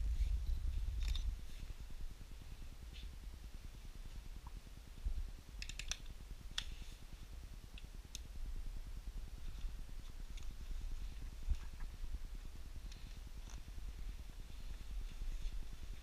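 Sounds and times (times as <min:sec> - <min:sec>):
steady low rumble: 0:00.0 - 0:16.0
sharp clicks: 0:05.6 - 0:06.7.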